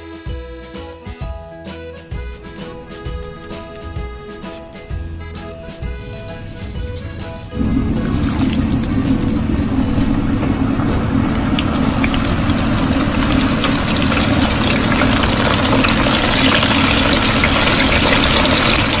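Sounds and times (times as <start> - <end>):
deep-frying sizzle with crackling: 6.0 - 19.0.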